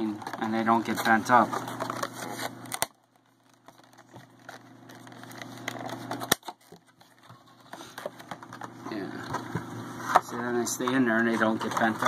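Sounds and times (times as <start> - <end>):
plastic cases clicking and rustling: 0.0 - 12.0.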